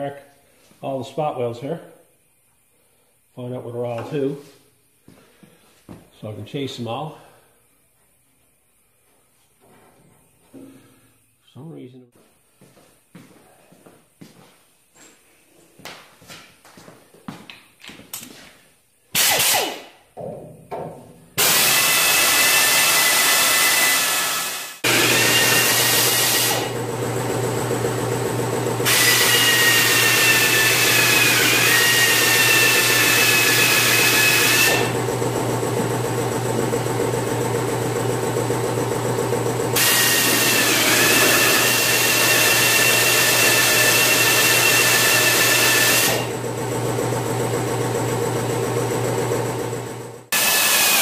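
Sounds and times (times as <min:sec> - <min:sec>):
drill whining through steel: 0:19.2 - 0:19.9, 0:21.4 - 0:36.0, 0:39.7 - 0:46.4, 0:50.3 - 0:51.0.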